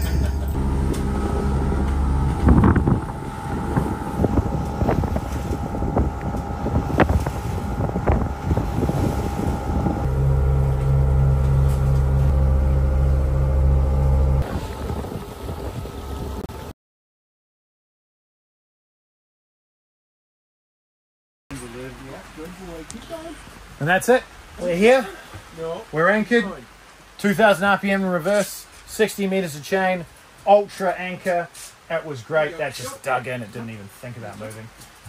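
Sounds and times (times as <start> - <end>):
diesel engine running: 0.0 - 16.7
wind on microphone: 0.0 - 16.7.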